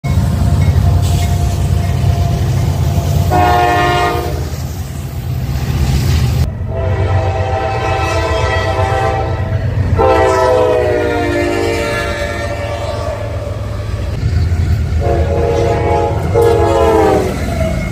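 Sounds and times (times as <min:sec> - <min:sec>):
diesel locomotives rumbling: 0:00.0 - 0:17.9
train air horn blasts: 0:03.0 - 0:04.6, 0:06.7 - 0:13.6, 0:15.0 - 0:17.5.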